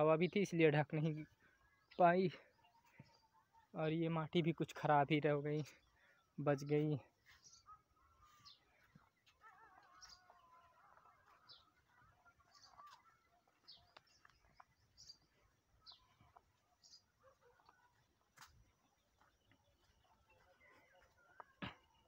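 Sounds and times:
faint bird chirps: 0:05.5 - 0:22.0.

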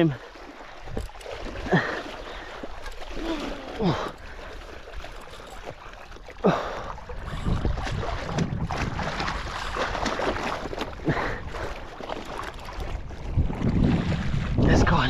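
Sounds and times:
water slapping against hull: 0:00.0 - 0:15.0
wind buffeting microphone: 0:06.6 - 0:15.0.

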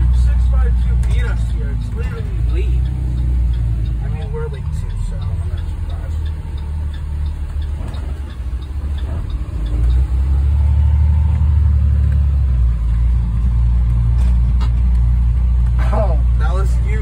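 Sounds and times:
bus engine droning: 0:00.0 - 0:17.0
faint regular ticking: 0:00.0 - 0:17.0.

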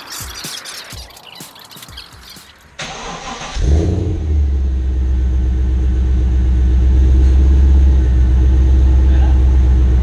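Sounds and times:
car engine idling with exhaust rumble: 0:03.9 - 0:10.0.

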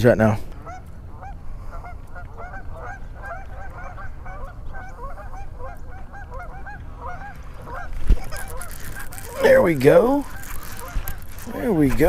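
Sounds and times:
flock of birds calling: 0:00.5 - 0:12.0.

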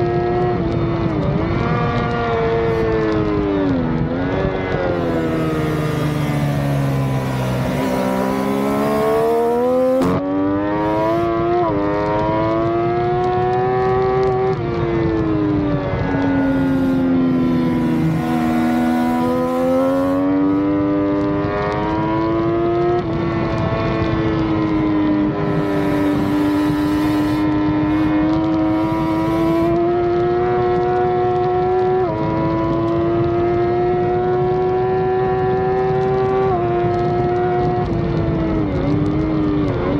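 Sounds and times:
motorcycle engine running hard: 0:00.0 - 0:39.9.

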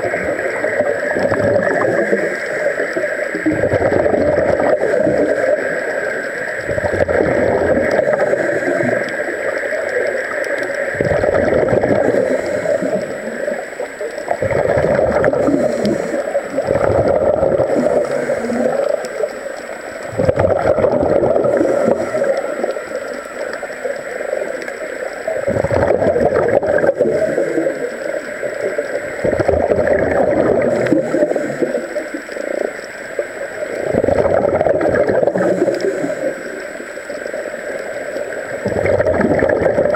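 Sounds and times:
scuba regulator exhaled bubbles: 0:00.0 - 0:09.3, 0:10.0 - 0:13.6, 0:14.2 - 0:19.2, 0:20.0 - 0:23.6, 0:25.3 - 0:28.0, 0:28.7 - 0:32.6, 0:33.7 - 0:36.6, 0:38.4 - 0:39.9
steady underwater drone: 0:00.0 - 0:39.9.

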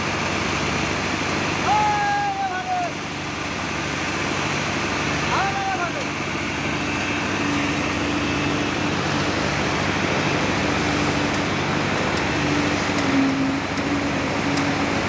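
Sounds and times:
diesel truck engine running: 0:00.0 - 0:15.0.

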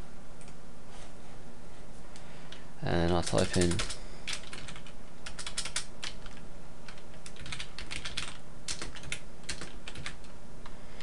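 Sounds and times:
keyboard keys clicking: 0:03.1 - 0:10.3.

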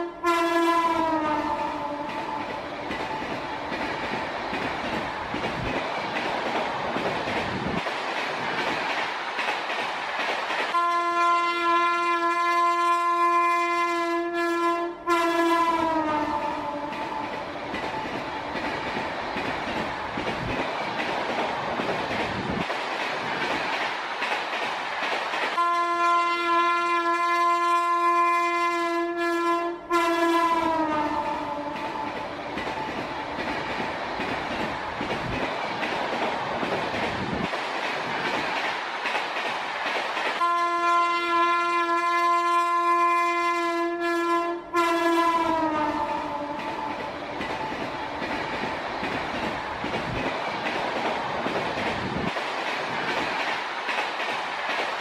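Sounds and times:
train horn blasts: 0:00.0 - 0:02.3, 0:10.7 - 0:17.2, 0:25.6 - 0:32.1, 0:40.4 - 0:46.9
diesel train running: 0:14.6 - 0:28.7, 0:29.8 - 0:55.0.

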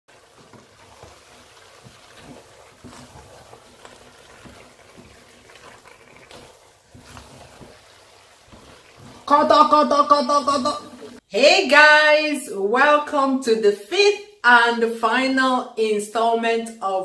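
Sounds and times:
wet squelching of thick mix: 0:00.1 - 0:09.4
spatula knocking and scraping pot: 0:00.1 - 0:11.2.

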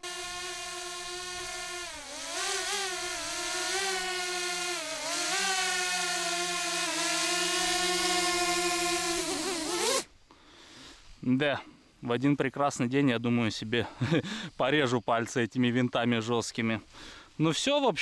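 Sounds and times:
drone propellers whining: 0:00.0 - 0:09.8.

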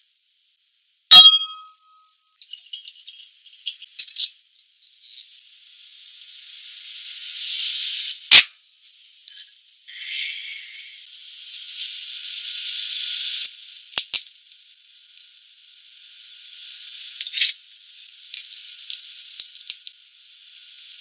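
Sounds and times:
steady hiss: 0:04.6 - 0:21.0
crayfish shell cracking: 0:18.2 - 0:19.9.

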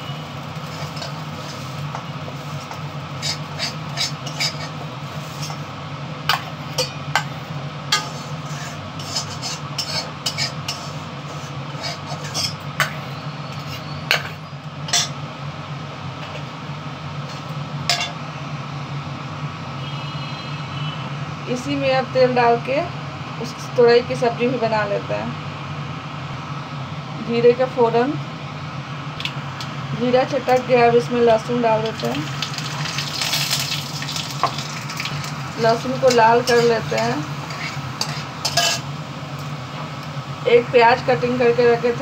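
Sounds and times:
metal spatula clinking on steel pan: 0:38.0 - 0:38.8.

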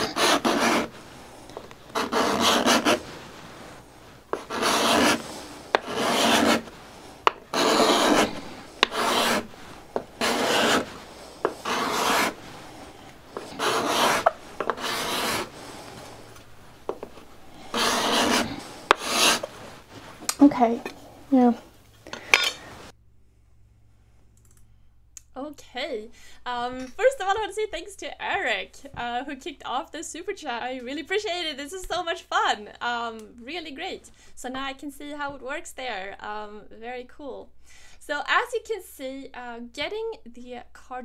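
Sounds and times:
card scraper scraping wood: 0:00.0 - 0:20.2.

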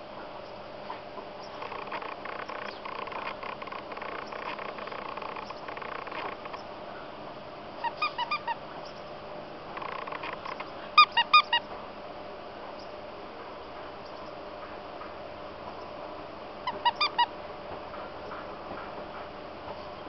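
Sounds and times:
dog toy squeaking: 0:07.8 - 0:08.6, 0:09.8 - 0:11.7, 0:16.7 - 0:17.3.

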